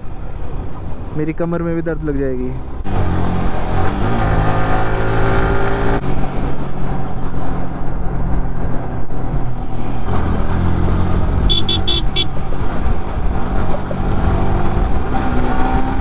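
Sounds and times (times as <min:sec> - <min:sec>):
motorcycle engine revving: 0:02.8 - 0:06.1, 0:09.6 - 0:16.0.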